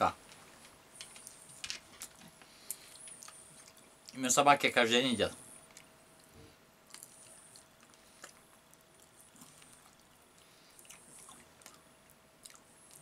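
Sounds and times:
person chewing: 0:02.0 - 0:04.2, 0:05.7 - 0:13.0.

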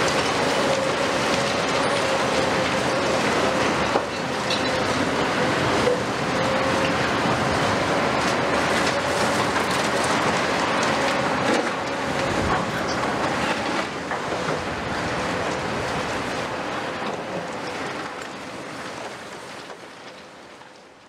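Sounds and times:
clanks of steel and rubble: 0:00.0 - 0:05.0
excavator engine and hydraulic drone: 0:00.0 - 0:21.0.

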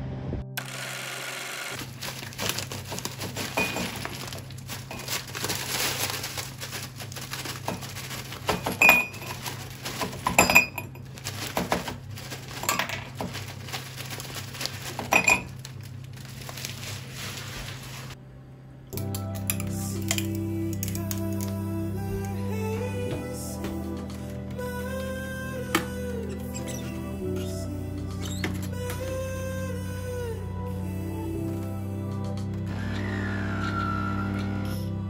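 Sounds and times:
ice cubes clinking in a mug: 0:01.8 - 0:15.7.

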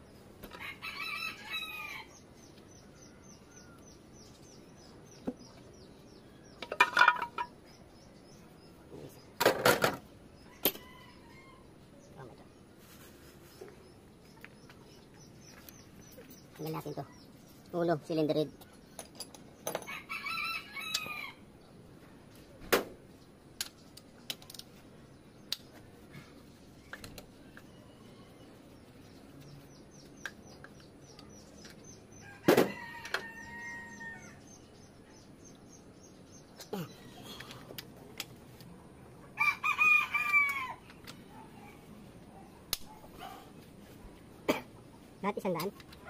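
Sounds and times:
rooster crowing: 0:00.5 - 0:02.1, 0:10.6 - 0:11.8, 0:19.8 - 0:21.4, 0:32.2 - 0:34.4, 0:39.4 - 0:40.8.

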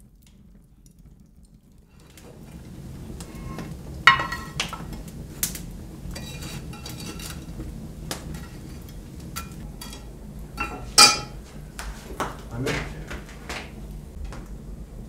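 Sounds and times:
metal shovel scraping on brick: 0:06.1 - 0:07.6, 0:08.3 - 0:10.0.

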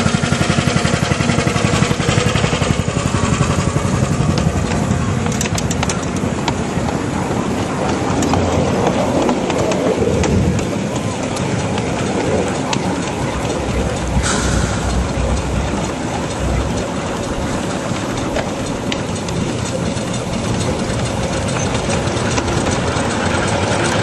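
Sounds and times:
miniature steam locomotive running: 0:00.0 - 0:24.0
steam hiss: 0:12.5 - 0:24.0.

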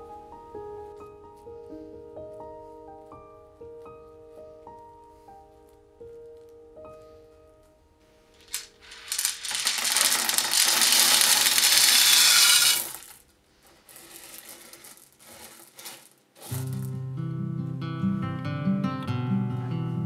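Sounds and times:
pie weights rattling into tin: 0:08.5 - 0:13.2, 0:13.8 - 0:16.9.

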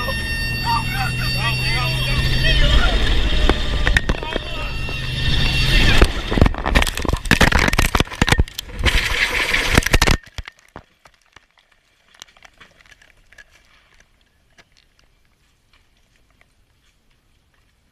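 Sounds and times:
helicopter crashing: 0:00.0 - 0:10.1.

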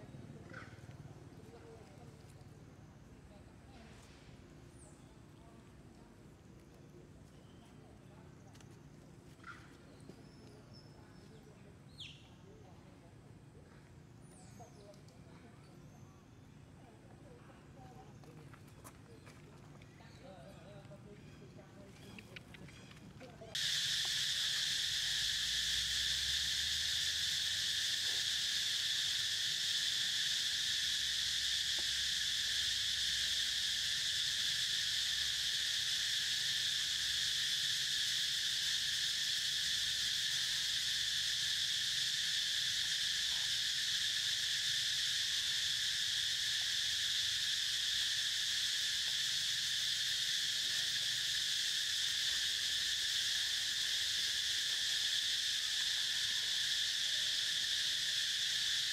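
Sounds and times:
high-pitched insect chorus: 0:00.0 - 0:05.7, 0:10.2 - 0:15.1, 0:19.8 - 0:58.9.

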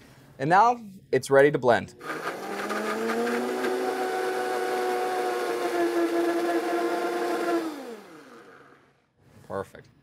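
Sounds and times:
blender motor whine: 0:02.0 - 0:08.9.

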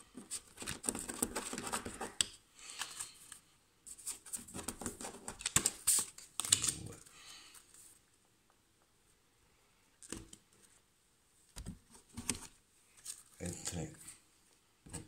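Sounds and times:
cards rustling and clicking: 0:00.1 - 0:03.4, 0:04.0 - 0:07.8, 0:11.6 - 0:13.8.

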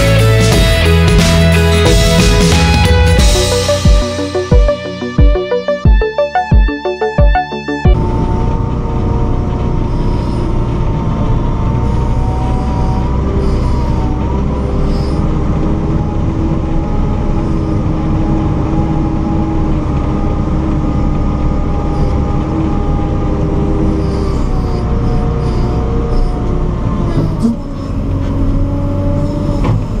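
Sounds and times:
diesel engine drone with whine: 0:00.0 - 0:30.0.

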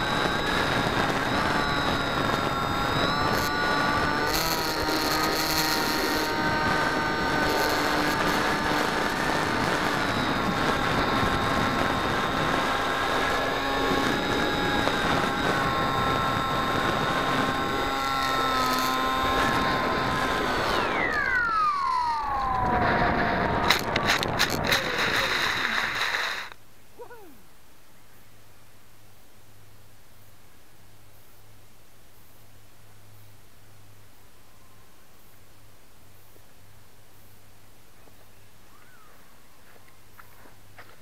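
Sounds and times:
electric motor and propeller whine: 0:00.0 - 0:26.6.

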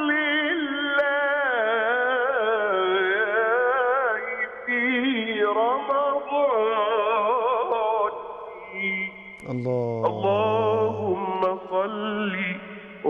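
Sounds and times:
man singing over telephone line: 0:00.0 - 0:12.6.

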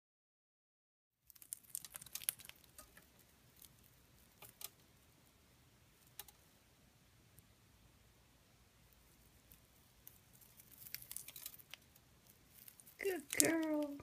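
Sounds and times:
bird beak cracking seeds: 0:01.3 - 0:04.8, 0:09.5 - 0:14.0.

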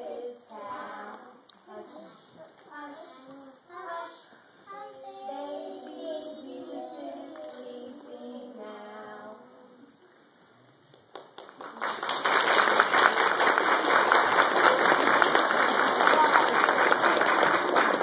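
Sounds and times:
children singing: 0:00.0 - 0:02.3, 0:03.8 - 0:09.9
audience applause: 0:11.1 - 0:18.0.

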